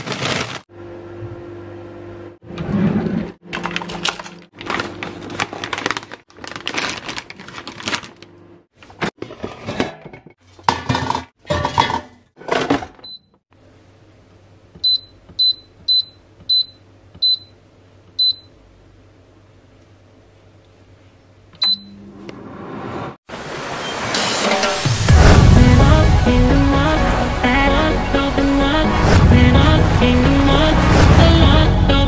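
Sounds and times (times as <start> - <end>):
air fryer beeps: 13.0 - 13.3, 14.8 - 17.6, 18.2 - 18.6, 21.6 - 22.1.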